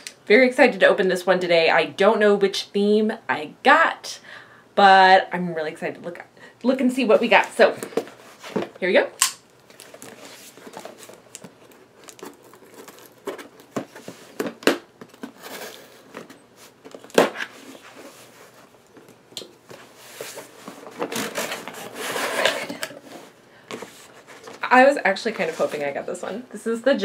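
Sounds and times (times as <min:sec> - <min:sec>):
cardboard and paper rustling: 0:07.3 - 0:08.8, 0:09.6 - 0:26.0.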